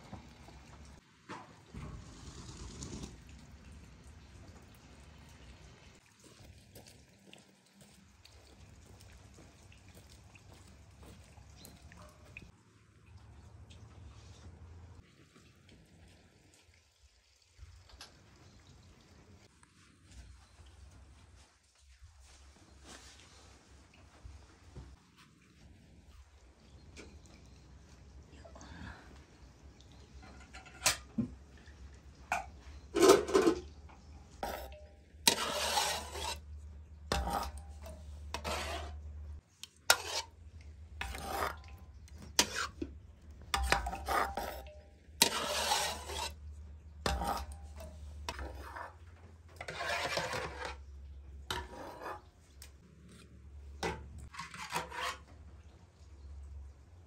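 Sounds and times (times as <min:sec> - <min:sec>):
rubbing and scraping strokes: 0:34.4 - 0:40.4, 0:41.0 - 0:42.8, 0:43.5 - 0:50.9, 0:51.5 - 0:53.2, 0:54.2 - 0:55.3.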